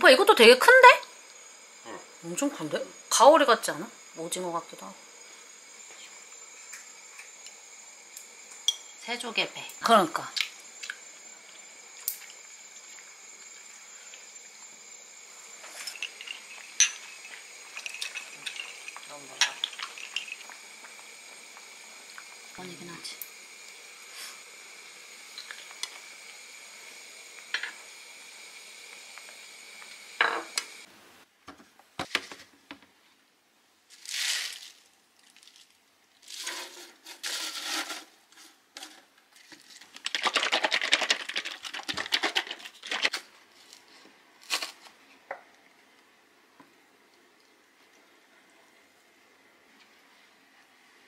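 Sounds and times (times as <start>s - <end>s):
spinach leaves rustling: 33.9s - 37.9s.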